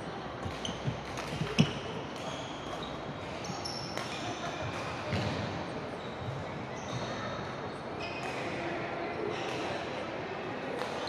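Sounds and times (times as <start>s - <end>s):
shoes squeaking on wooden court: 0.4s - 8.5s.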